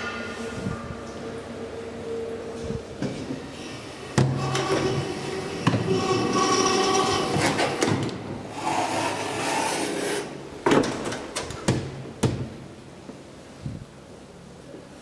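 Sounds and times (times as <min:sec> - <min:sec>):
elevator doors sliding with whir: 0:00.0 - 0:14.0.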